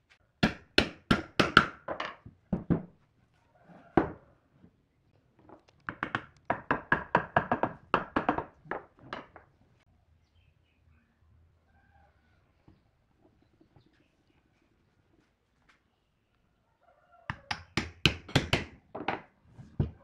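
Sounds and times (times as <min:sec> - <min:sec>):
hammer striking wood: 0:00.4 - 0:02.9, 0:05.9 - 0:09.4, 0:17.3 - 0:20.0.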